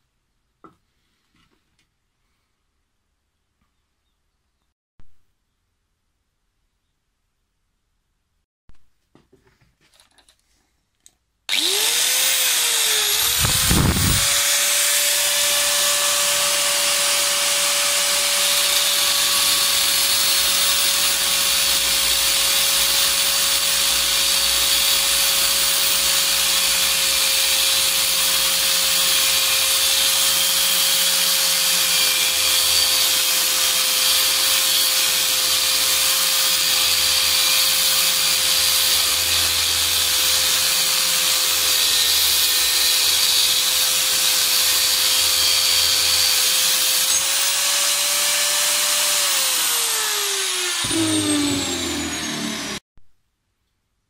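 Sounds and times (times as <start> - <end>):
angle grinder whine: 11.5 - 52.8
grinder cutting steel: 11.5 - 52.8.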